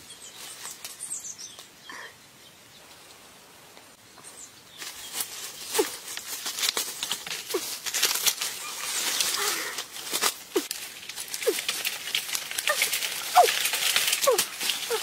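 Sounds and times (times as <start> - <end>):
leaves rustling: 0.0 - 15.0
branches creaking: 4.8 - 15.0
twigs cracking: 4.8 - 15.0.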